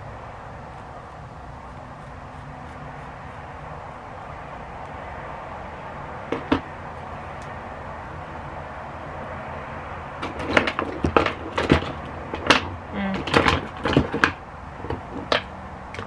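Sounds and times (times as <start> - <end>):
scissors snipping hair: 0.7 - 5.0.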